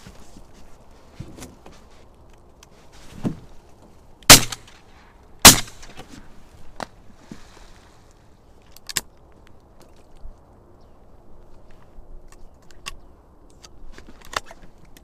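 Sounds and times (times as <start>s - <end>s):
shotgun shots: 4.3s - 4.7s, 5.4s - 5.9s.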